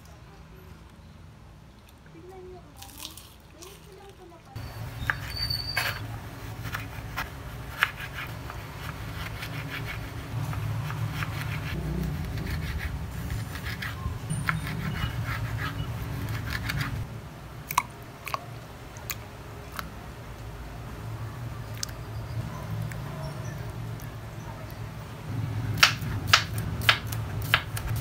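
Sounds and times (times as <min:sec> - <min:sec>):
knife slicing lemon on board: 0:06.6 - 0:10.1.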